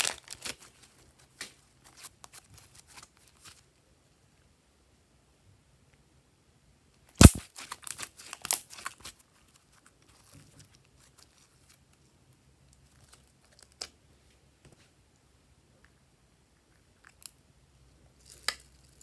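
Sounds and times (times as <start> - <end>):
slime popping and crackling: 7.2 - 9.1
slime squishing: 7.2 - 12.0.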